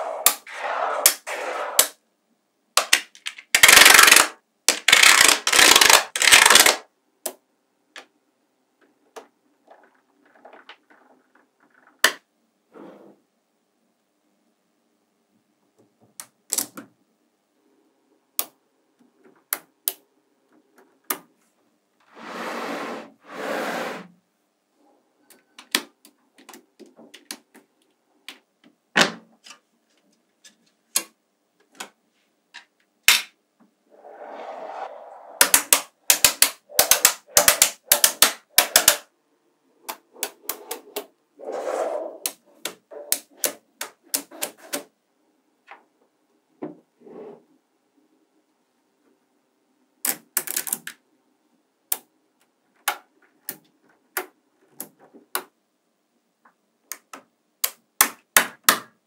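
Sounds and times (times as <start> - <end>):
magnetic balls clicking together: 2.8 - 7.4, 35.4 - 39.1, 50.0 - 51.0
magnetic balls rattling: 9.5 - 12.1.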